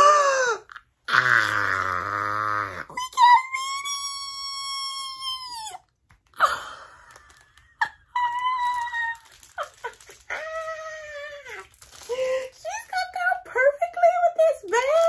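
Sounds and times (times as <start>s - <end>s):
woman squealing: 2.6s - 5.8s, 7.8s - 12.4s.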